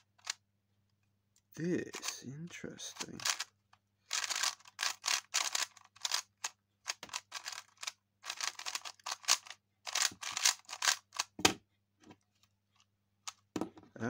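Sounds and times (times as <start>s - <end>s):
plastic cube layers clacking: 2.9s - 3.5s, 4.1s - 11.6s
cube knocking on wooden desk: 11.3s - 11.6s, 13.5s - 13.9s.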